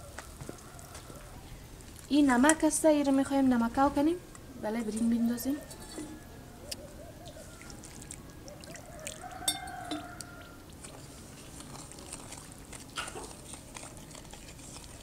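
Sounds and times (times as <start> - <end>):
metal spoon stirring in bowl: 4.8 - 6.3, 9.1 - 10.3.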